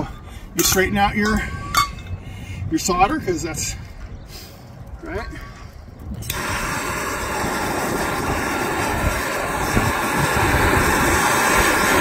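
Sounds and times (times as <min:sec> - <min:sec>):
gas torch flame rushing: 0:06.0 - 0:12.0.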